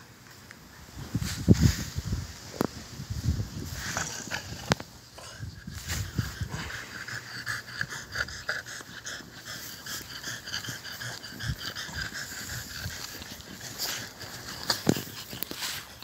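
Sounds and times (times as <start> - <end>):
puppy panting: 3.9 - 16.0.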